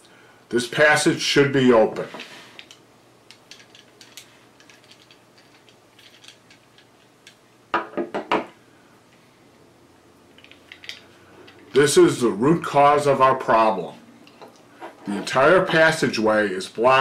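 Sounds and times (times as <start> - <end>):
small brass fittings clicking: 2.6 - 7.4, 10.3 - 11.7
parts knocking on a tabletop: 7.7 - 8.5.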